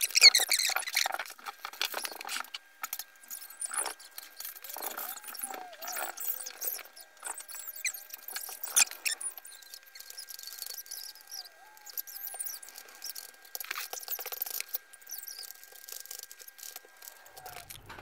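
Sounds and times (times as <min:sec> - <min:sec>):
small squeaks: 0:00.0 - 0:18.0.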